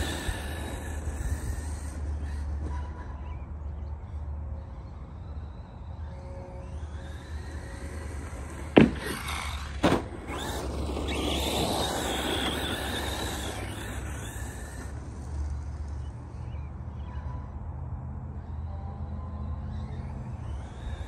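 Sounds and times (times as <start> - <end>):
electric motor whining: 0.0 - 2.9, 4.8 - 16.5
tyres rushing: 0.0 - 3.0, 6.7 - 16.1
toy truck landing thuds: 8.7 - 13.9.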